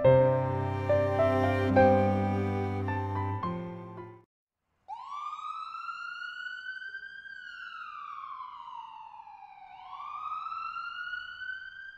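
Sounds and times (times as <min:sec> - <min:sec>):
siren wailing: 0:04.9 - 0:11.9.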